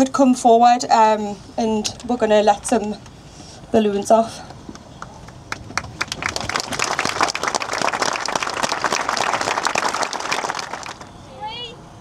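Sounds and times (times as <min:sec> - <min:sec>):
crowd applauding: 0:04.7 - 0:11.1.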